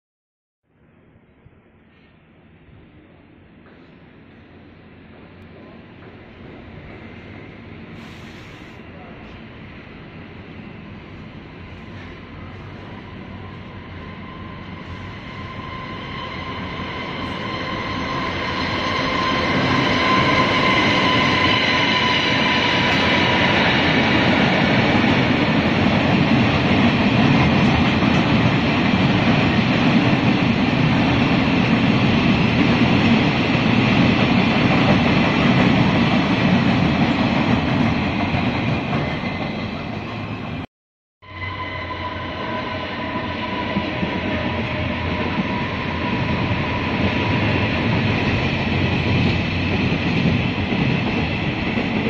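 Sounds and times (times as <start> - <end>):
freight train clattering on rails: 16.8 - 40.6, 43.7 - 52.0.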